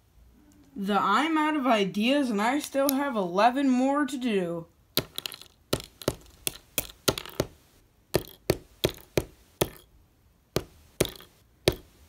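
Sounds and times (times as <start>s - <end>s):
reed tapping on wooden table: 8.2s - 9.8s, 10.6s - 12.0s.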